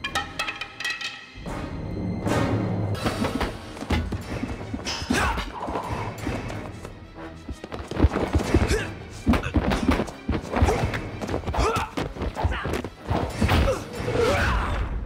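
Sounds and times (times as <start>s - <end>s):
loud film score: 0.0s - 15.0s.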